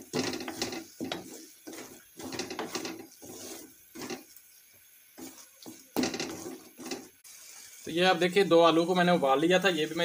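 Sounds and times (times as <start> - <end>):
wooden spatula scraping metal pan: 0.0 - 7.9.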